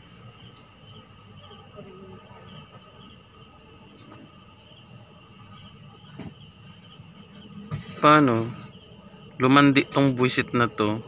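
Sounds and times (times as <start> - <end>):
crickets trilling: 0.0 - 11.0
insect chirps: 0.0 - 11.0.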